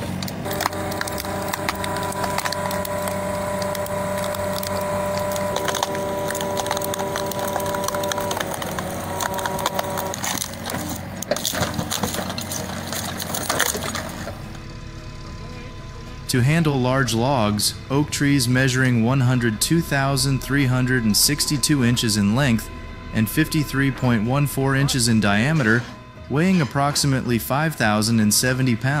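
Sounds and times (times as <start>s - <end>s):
wood cracking and splintering: 0.0s - 14.7s
heavy machine whine: 0.0s - 29.0s.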